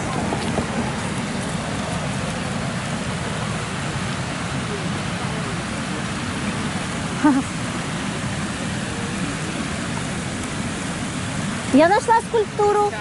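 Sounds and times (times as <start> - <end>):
fountain jet of water splashing: 0.0 - 13.0.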